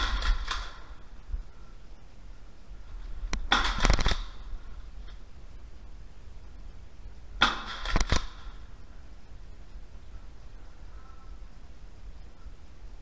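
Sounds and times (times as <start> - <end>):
quick cracks: 0.0 - 1.0, 3.3 - 4.5, 7.4 - 8.6.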